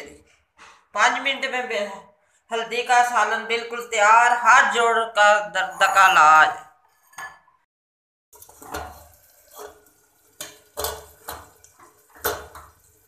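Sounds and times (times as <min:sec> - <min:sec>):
metal ladle knocking on pot: 0:10.4 - 0:12.8.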